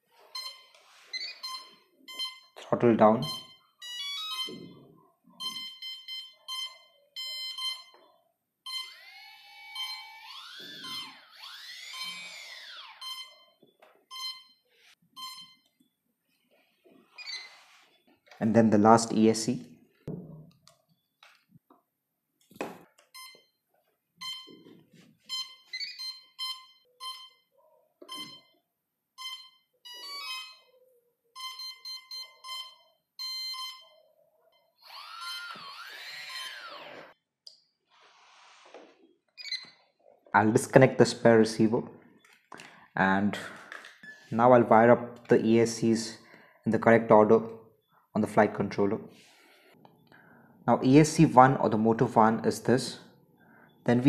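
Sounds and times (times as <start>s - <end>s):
short electronic beeps: 0.3s - 2.6s, 15.2s - 15.7s
high beeps: 3.2s - 4.8s, 9.7s - 14.6s, 15.2s - 15.7s, 31.4s - 34.0s.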